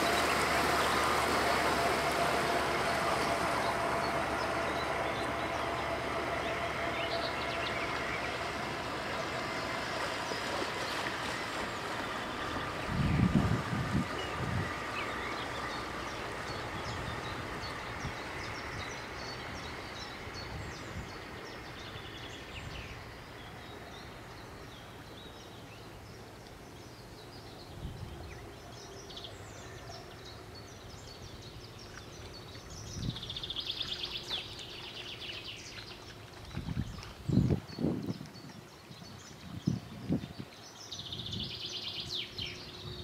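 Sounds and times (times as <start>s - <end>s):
electric outboard motor whining: 0.0s - 22.3s
birds chirping: 0.0s - 43.0s.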